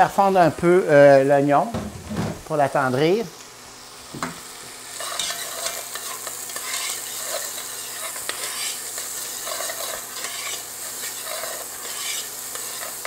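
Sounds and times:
vegetables sizzling in oil: 0:00.0 - 0:13.0
metal tongs scraping a pot: 0:05.0 - 0:13.0.

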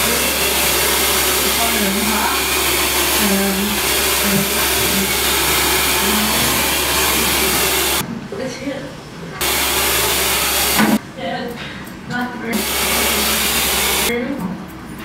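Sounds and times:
hair dryer blowing: 0:00.0 - 0:08.0, 0:09.4 - 0:11.0, 0:12.5 - 0:14.1.

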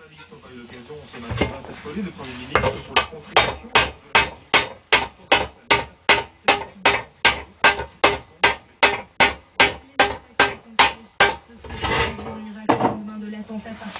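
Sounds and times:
hammer striking sheet steel: 0:02.6 - 0:11.5.

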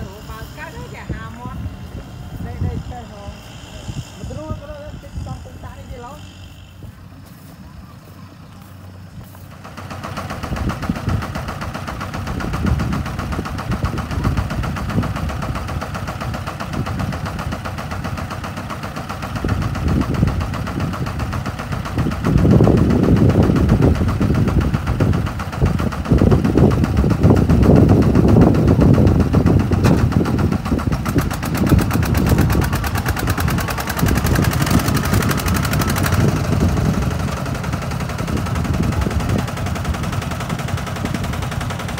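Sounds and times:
tractor diesel engines chugging: 0:00.0 - 0:41.9.

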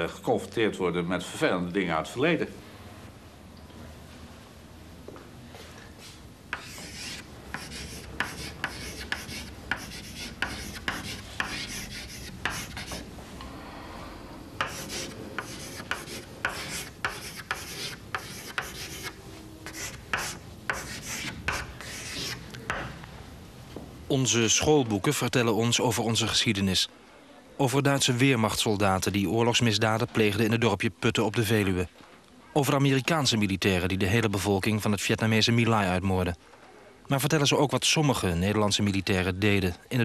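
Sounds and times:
chalk scratching on blackboard: 0:06.5 - 0:13.1, 0:14.6 - 0:22.9
chalk taps: 0:06.5 - 0:13.1, 0:14.6 - 0:23.0.

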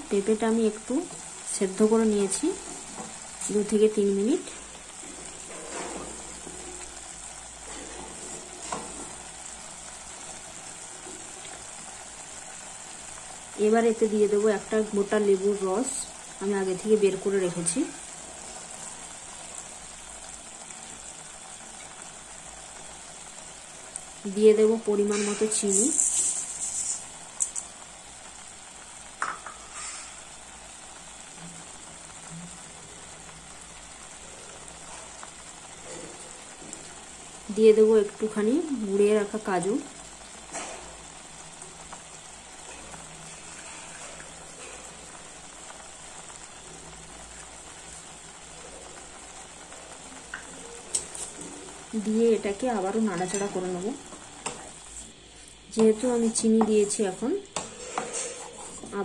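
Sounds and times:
papaya sizzling in a wok: 0:00.0 - 0:59.0
wooden spatula stirring: 0:57.6 - 0:59.0.

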